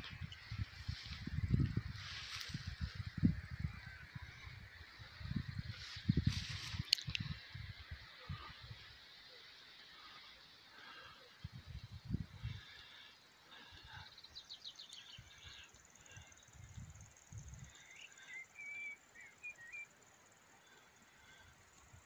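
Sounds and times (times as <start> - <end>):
wind bumps on microphone: 0.0 - 4.6, 5.2 - 7.7
small songbirds singing: 0.0 - 22.0.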